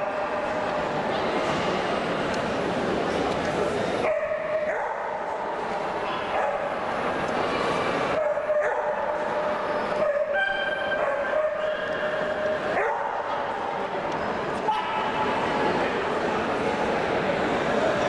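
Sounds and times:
indoor crowd hubbub: 0.0 - 18.0.

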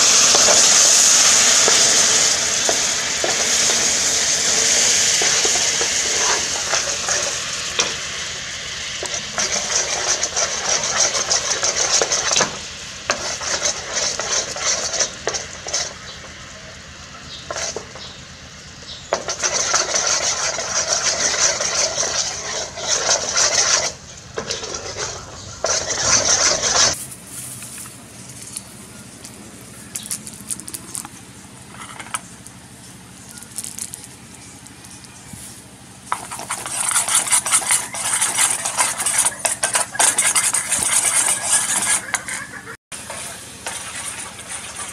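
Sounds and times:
liquid boiling and bubbling: 0.0 - 44.9
metal spoon scraping pot: 19.3 - 27.0, 36.1 - 44.9.

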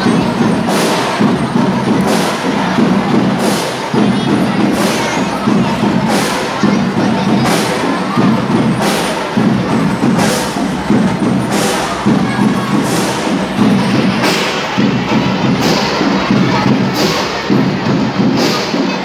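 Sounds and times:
drums beating: 0.0 - 19.0
cymbal crash: 7.4 - 18.9.

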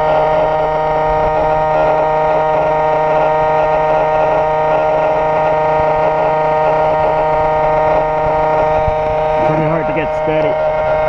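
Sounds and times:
motor generator whine: 0.0 - 11.0.

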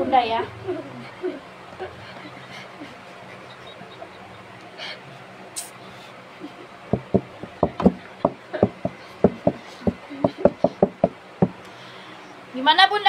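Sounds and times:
sharp knocks: 6.9 - 11.6.

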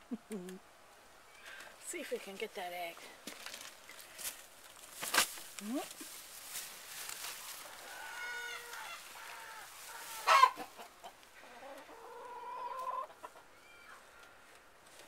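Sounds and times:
chicken clucking and calling: 7.6 - 14.7.

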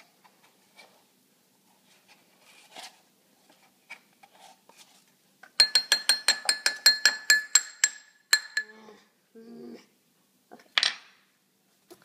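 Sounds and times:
spoon clinking on ceramic bowl: 5.6 - 8.8.

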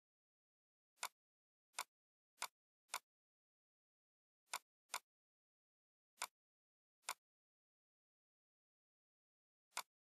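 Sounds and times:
mouse and keyboard clicks: 7.0 - 7.2, 9.7 - 10.0.

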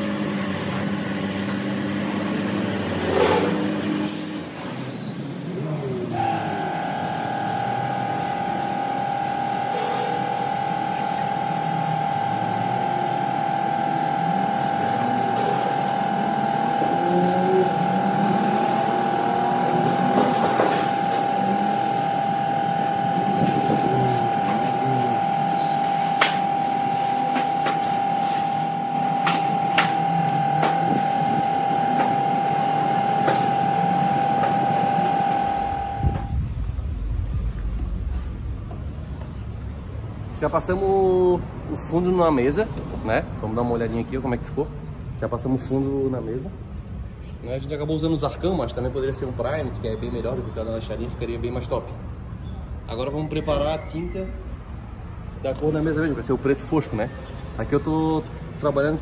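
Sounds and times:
spray gun spraying: 0.0 - 2.6, 6.1 - 36.4
air compressor hum and whine: 0.0 - 59.0
low rumble: 36.2 - 39.7.

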